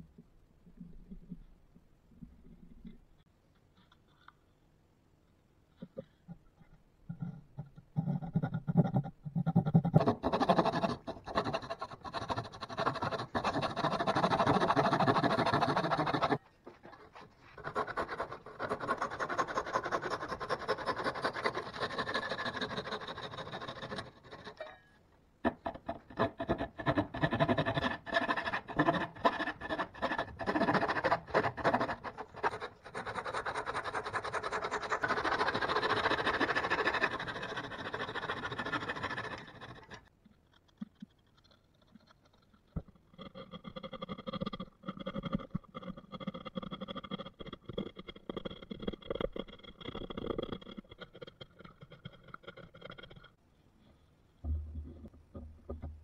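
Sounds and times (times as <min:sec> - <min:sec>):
handsaw rasping through wood: 0:10.0 - 0:16.4, 0:17.6 - 0:24.6, 0:25.8 - 0:40.0.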